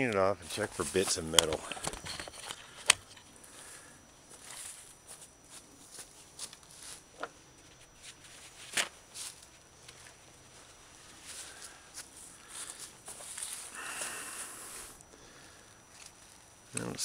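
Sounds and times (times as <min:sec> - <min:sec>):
footsteps on dry leaves: 0:08.0 - 0:13.7.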